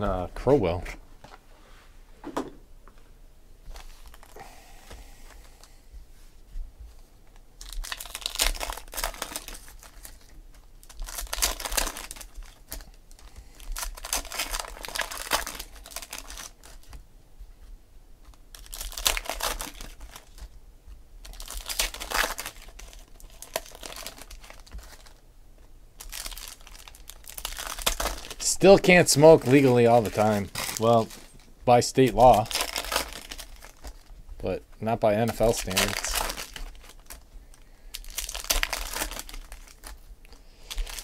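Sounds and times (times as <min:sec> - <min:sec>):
foil wrappers tearing and crinkling: 0:03.8 - 0:04.4, 0:07.6 - 0:17.0, 0:18.3 - 0:20.6, 0:21.2 - 0:25.2, 0:26.0 - 0:34.2, 0:35.0 - 0:41.0.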